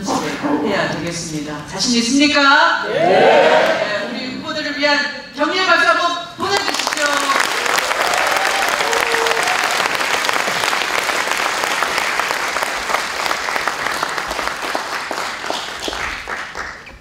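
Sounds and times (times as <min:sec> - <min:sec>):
audience applauding: 0:06.6 - 0:17.0.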